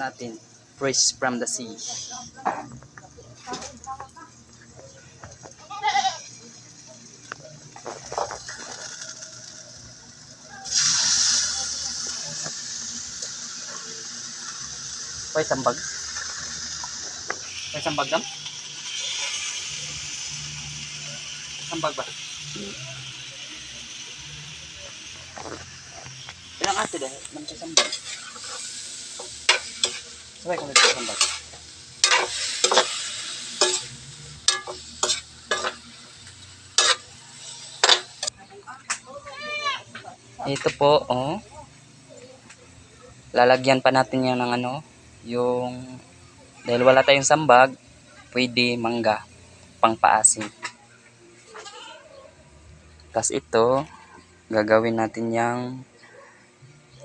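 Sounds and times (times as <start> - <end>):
fish sizzling in hot oil: 0.0 - 2.4, 3.5 - 51.8
metal tongs scraping a wok: 15.8 - 20.4, 26.6 - 38.3.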